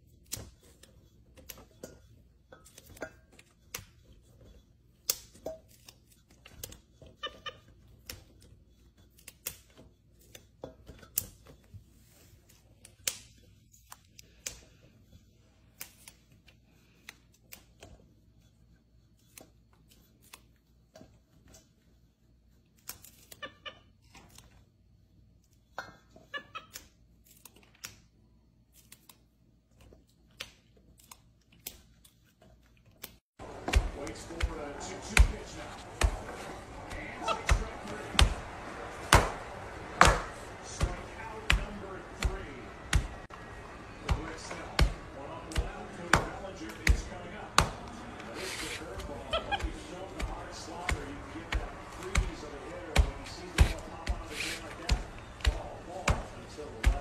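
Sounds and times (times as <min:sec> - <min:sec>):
green beans snapping: 0:26.6 - 0:28.1.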